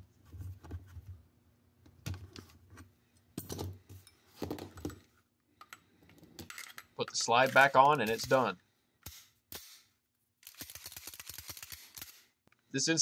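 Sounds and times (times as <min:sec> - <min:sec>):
tools set down on table: 0:03.4 - 0:05.8
metal tools clinking on steel: 0:03.4 - 0:08.5.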